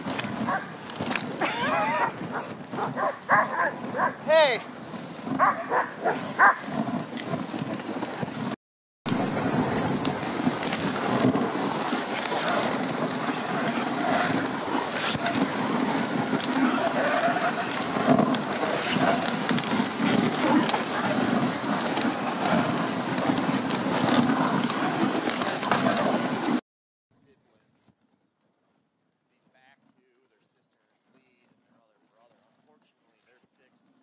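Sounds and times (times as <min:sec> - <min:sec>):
sled clicks and rattles: 0:00.0 - 0:26.6
sled runners scraping on snow: 0:00.0 - 0:26.6, 0:29.4 - 0:34.0.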